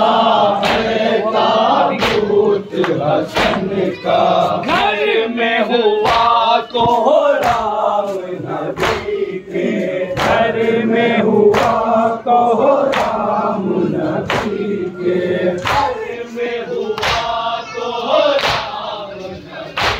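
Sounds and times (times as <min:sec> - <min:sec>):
men chanting in unison: 0:00.0 - 0:19.9
chest-beating slaps: 0:00.6 - 0:01.0, 0:01.9 - 0:03.8, 0:06.0 - 0:07.8, 0:08.7 - 0:09.2, 0:10.1 - 0:10.6, 0:11.5 - 0:11.9, 0:12.9 - 0:13.2, 0:14.2 - 0:14.7, 0:15.6 - 0:16.1, 0:17.0 - 0:17.4, 0:18.4 - 0:18.8.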